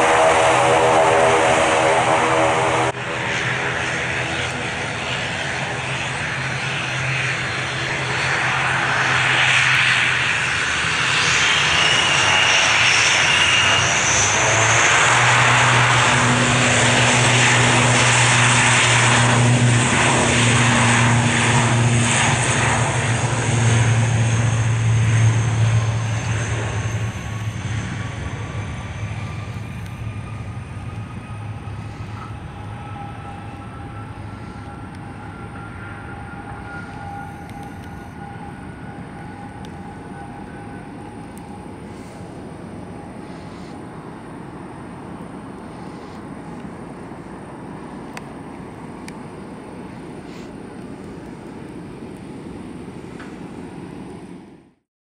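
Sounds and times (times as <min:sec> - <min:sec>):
turboprop airliner propeller drone: 0:00.0 - 0:54.9.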